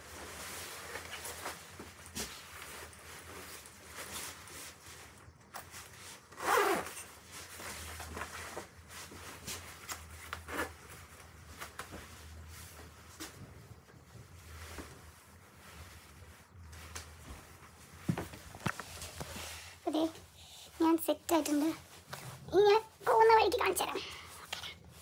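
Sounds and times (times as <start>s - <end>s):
fabric rustling: 0.0s - 25.0s
jacket zipper being pulled: 6.3s - 8.7s, 9.8s - 10.9s.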